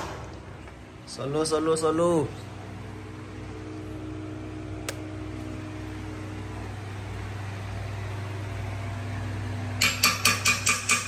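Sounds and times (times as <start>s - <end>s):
steady low hum: 0.0s - 9.8s
sharp click: 4.8s - 5.0s.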